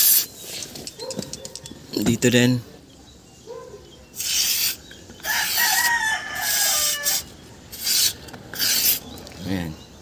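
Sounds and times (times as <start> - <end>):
aerosol spray hissing: 0.0 - 0.3, 4.2 - 4.8, 6.4 - 9.0
rooster crowing: 5.2 - 7.3.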